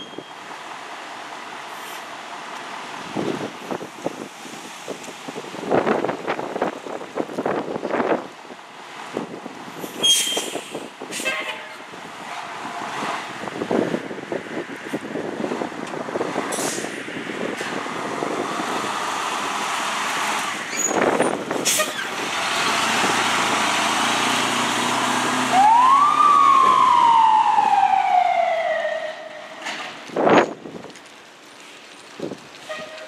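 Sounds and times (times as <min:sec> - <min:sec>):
siren rising and falling: 0:25.2 - 0:29.6.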